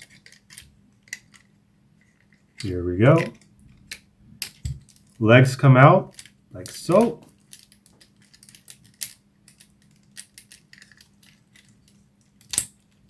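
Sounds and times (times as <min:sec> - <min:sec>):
plastic toy parts clicking: 0:06.1 - 0:13.0.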